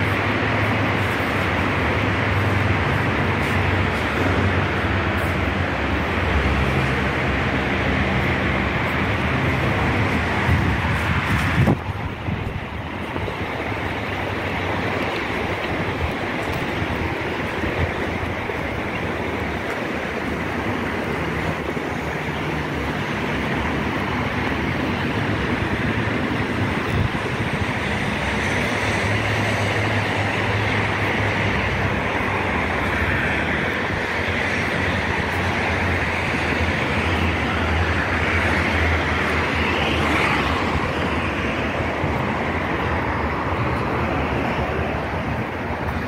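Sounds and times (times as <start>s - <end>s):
traffic noise: 0.0s - 46.0s
wind on microphone: 0.0s - 46.0s.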